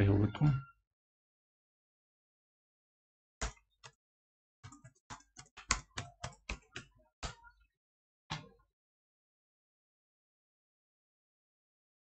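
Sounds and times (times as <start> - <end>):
keyboard key clicks: 4.7 - 7.4.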